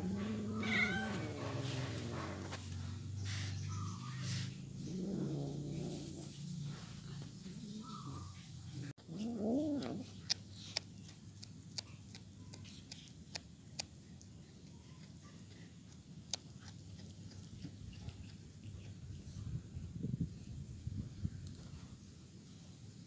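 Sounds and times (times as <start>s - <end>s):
cat growl: 0.0s - 2.6s, 4.6s - 10.3s
cat chewing crunching bones: 9.0s - 19.0s.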